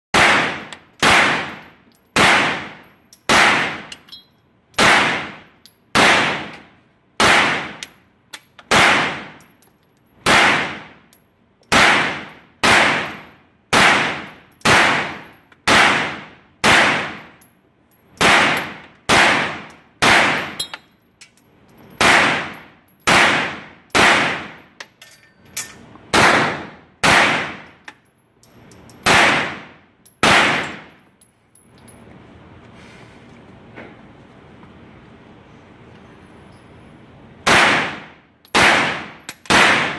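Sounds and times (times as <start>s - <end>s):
gunshots echoing indoors: 0.2s - 4.0s, 4.8s - 7.9s, 8.7s - 9.4s, 10.2s - 11.0s, 11.7s - 17.4s, 18.2s - 20.6s, 22.0s - 24.6s, 26.1s - 27.8s, 29.0s - 31.0s, 37.4s - 39.9s.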